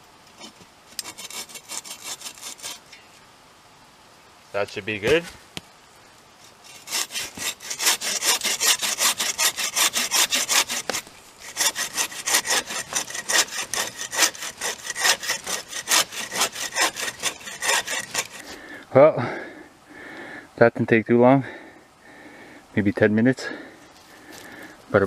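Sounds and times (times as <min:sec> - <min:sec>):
saw cutting through wood: 0:00.4 - 0:02.8, 0:06.6 - 0:18.6.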